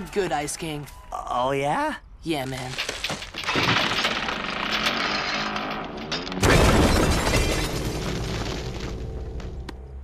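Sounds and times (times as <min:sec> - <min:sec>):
ice crackling: 0:02.3 - 0:09.7
loud deep ice shattering crash: 0:06.4 - 0:09.1.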